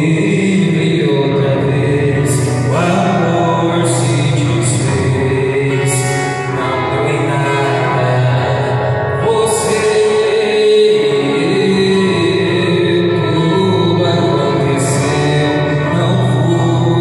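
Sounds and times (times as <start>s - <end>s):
acoustic guitar: 0.0s - 17.0s
man singing into a microphone: 0.0s - 17.0s.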